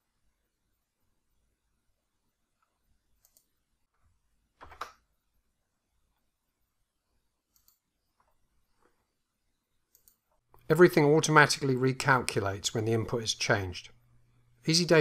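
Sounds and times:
mouse and keyboard clicks: 0:03.2 - 0:03.5, 0:07.5 - 0:08.3, 0:09.9 - 0:10.7.

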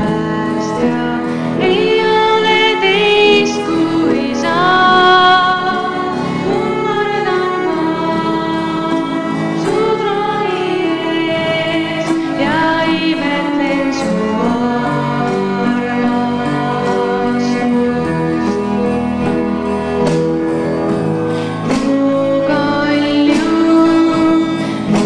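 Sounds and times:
woman singing into a microphone: 0:00.0 - 0:18.9, 0:21.4 - 0:25.0
electronic keyboard chords: 0:00.0 - 0:25.0.

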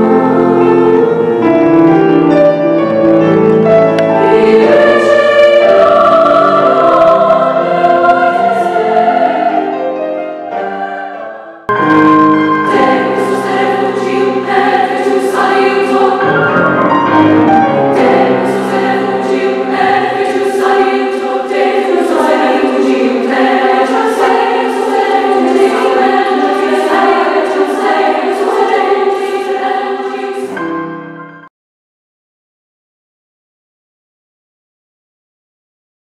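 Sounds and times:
women's choir singing: 0:04.0 - 0:11.7, 0:12.6 - 0:30.8.

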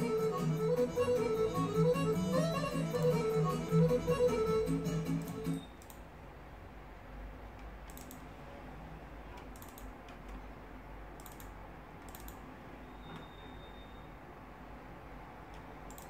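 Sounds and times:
computer mouse buttons clicking: 0:05.2 - 0:06.1, 0:07.6 - 0:08.3, 0:09.3 - 0:10.4, 0:11.2 - 0:12.5, 0:15.5 - 0:16.0.

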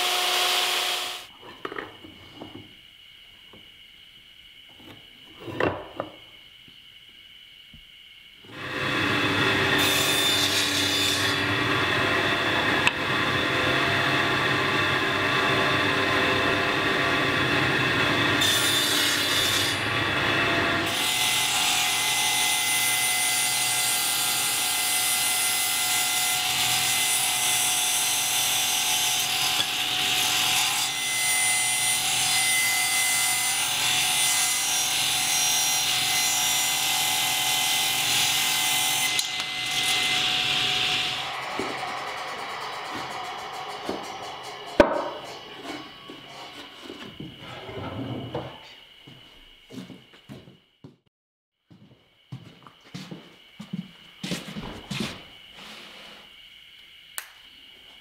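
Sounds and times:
hissy woodworking machine cutting: 0:00.0 - 0:01.3, 0:07.4 - 0:49.0, 0:53.4 - 0:58.0
table saw ripping wood: 0:08.5 - 0:45.2.

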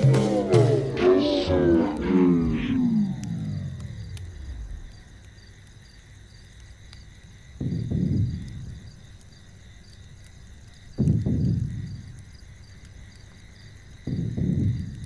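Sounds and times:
deep low rumble: 0:00.0 - 0:05.2
crickets chirping: 0:00.0 - 0:15.0.

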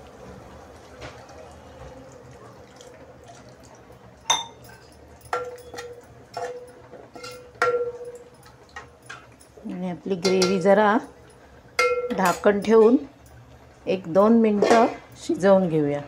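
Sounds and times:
water pouring into pot: 0:00.0 - 0:06.0
spoon knocking on pot: 0:04.3 - 0:04.6, 0:05.3 - 0:08.4, 0:10.2 - 0:10.8, 0:11.8 - 0:12.9.

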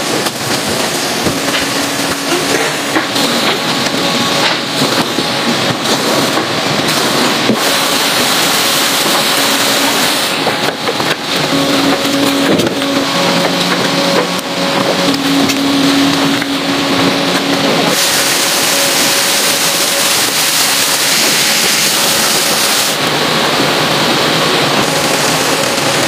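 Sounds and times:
conveyor machinery rushing: 0:00.0 - 0:26.0
low machinery hum: 0:00.0 - 0:26.0.

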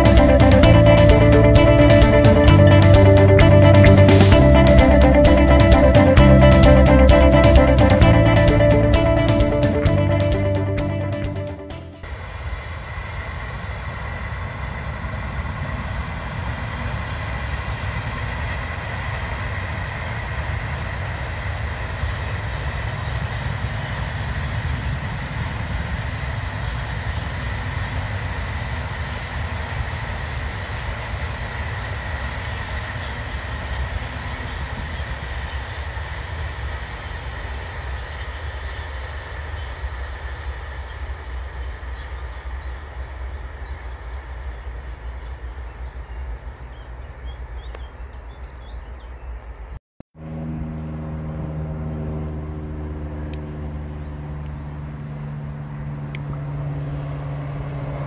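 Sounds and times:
train wheels rumbling on rails: 0:00.0 - 0:11.4.

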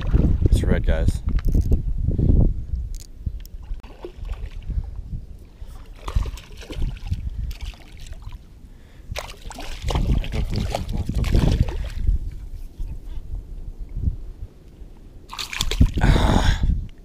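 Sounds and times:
water sloshing and splashing: 0:00.0 - 0:00.5, 0:03.5 - 0:12.5, 0:15.3 - 0:16.0
fish thrashing at water surface: 0:05.8 - 0:08.4, 0:09.1 - 0:12.1, 0:15.3 - 0:16.0.

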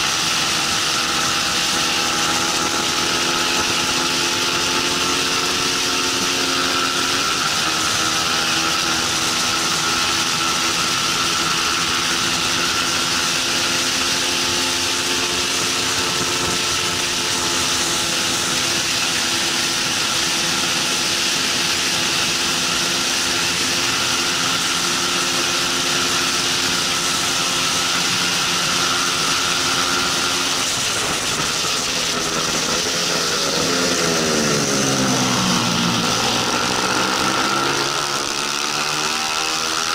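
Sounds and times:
motorbike engine revving high: 0:00.0 - 0:39.9
wind rush: 0:26.1 - 0:37.7.

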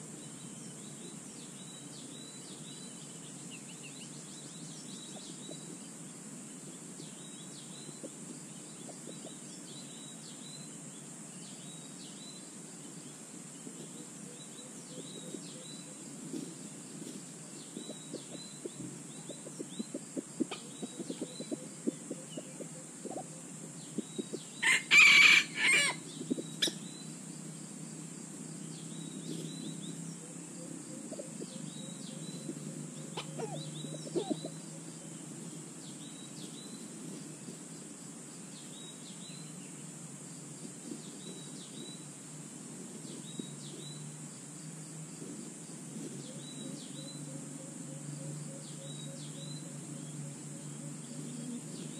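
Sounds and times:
rooster crowing: 0:24.6 - 0:26.0.

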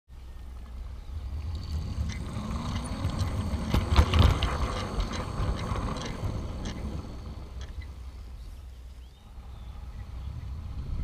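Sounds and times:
low rumble: 0:00.2 - 0:11.0
model train rattling: 0:00.4 - 0:09.9
clicks over rails: 0:00.6 - 0:08.1.

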